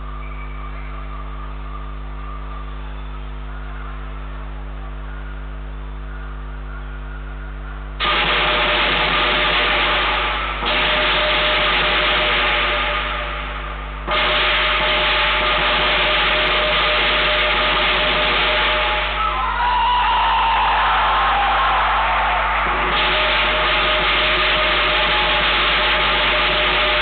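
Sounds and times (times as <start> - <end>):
gong: 0.0 - 19.3, 22.6 - 27.0
steady hum: 0.0 - 27.0
drum: 21.6 - 27.0
crashing cymbals: 22.5 - 27.0.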